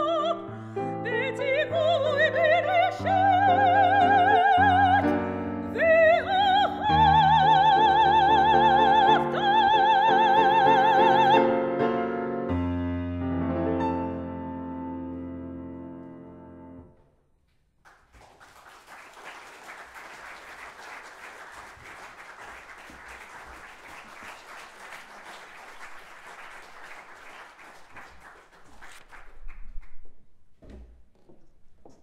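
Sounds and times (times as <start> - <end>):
audience applauding: 17.8 - 30.1.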